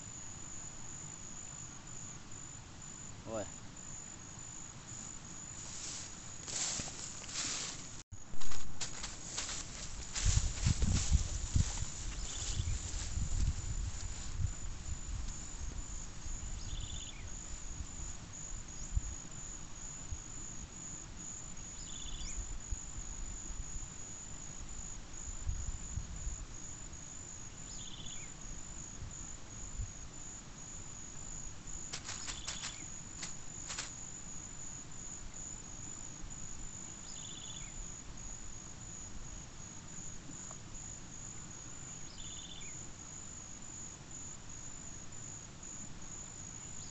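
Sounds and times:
high-pitched insect trill: 0.0s - 46.9s
short insect chirp: 0.0s - 46.9s.

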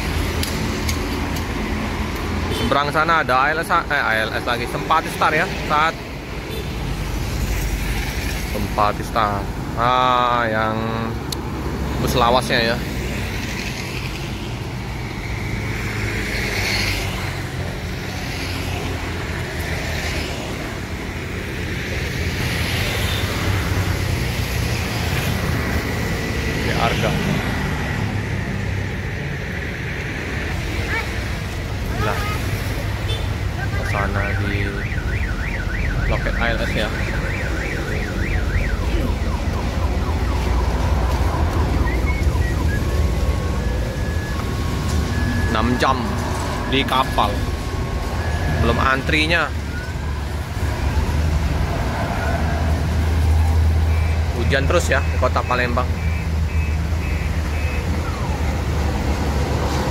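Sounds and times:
warbling electronic siren: 33.9s - 51.2s, 53.2s - 59.6s.

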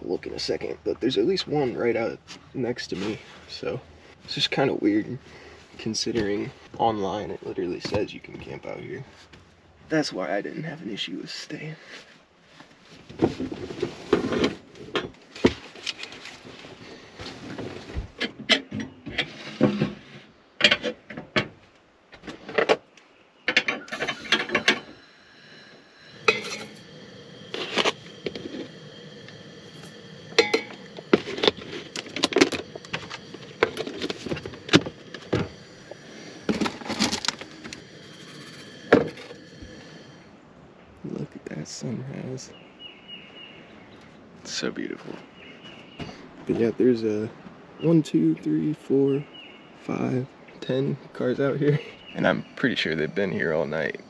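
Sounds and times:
faint steady whine: 0.0s - 54.0s
mug and kettle clattering: 23.5s - 25.0s, 26.1s - 40.0s
coffee grounds pouring: 23.9s - 40.2s.

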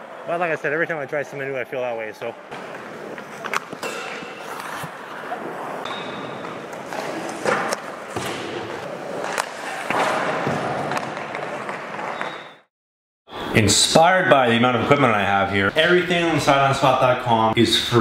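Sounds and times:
knocks of sticks and pucks: 2.5s - 5.2s, 5.8s - 12.6s
skate blades scraping on ice: 2.6s - 5.8s, 8.8s - 12.6s.

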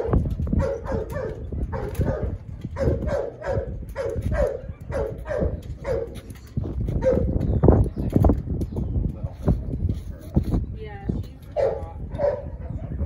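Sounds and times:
dog barking: 0.0s - 6.2s, 7.0s - 7.3s, 11.6s - 13.0s.

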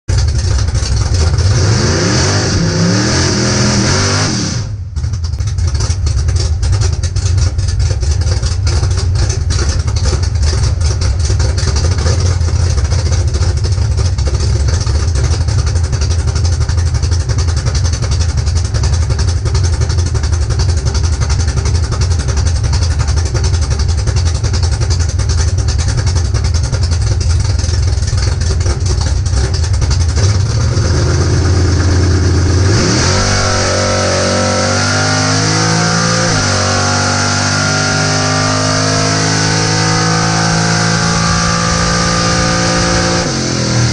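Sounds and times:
engine idling: 0.0s - 43.9s
engine revving with hiss: 1.6s - 4.8s.

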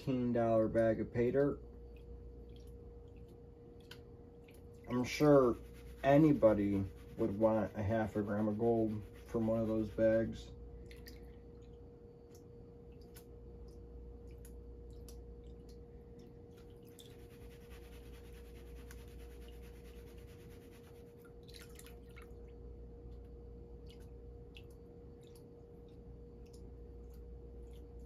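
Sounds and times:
water drips and light splashing: 0.7s - 5.9s, 10.7s - 17.6s, 21.1s - 28.0s.

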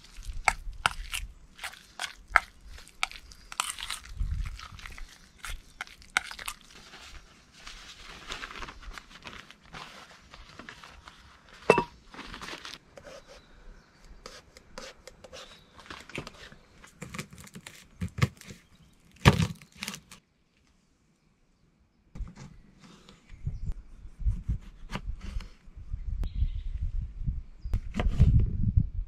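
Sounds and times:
rustling and crinkling: 0.0s - 13.0s, 15.4s - 20.8s.

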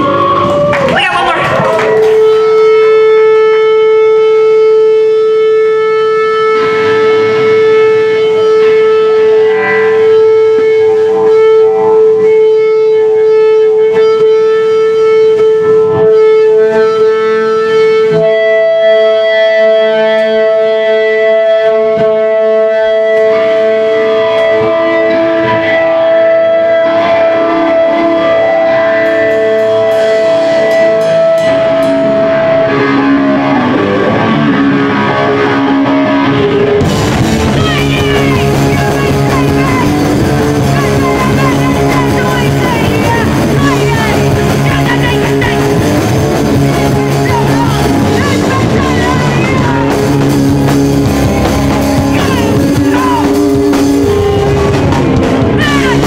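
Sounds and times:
electric guitar droning note: 0.0s - 56.0s
drums and cymbals: 29.1s - 32.6s, 36.8s - 56.0s.

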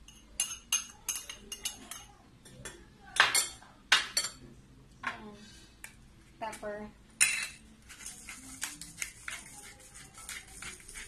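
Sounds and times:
metal spoon clinking on ceramic bowls: 0.0s - 4.4s, 7.2s - 7.6s.

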